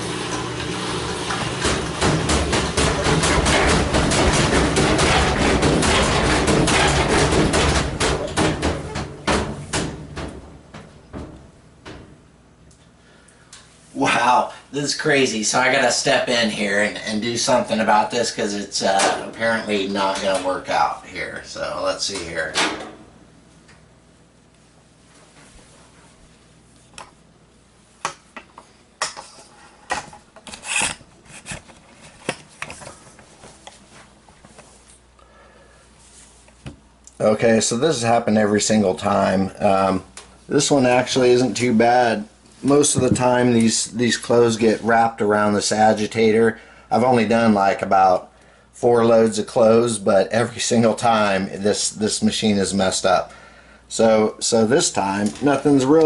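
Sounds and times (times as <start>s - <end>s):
washing machine knocking and banging: 0.0s - 12.2s, 22.5s - 23.1s, 42.9s - 43.4s
scraping rub: 30.5s - 32.2s.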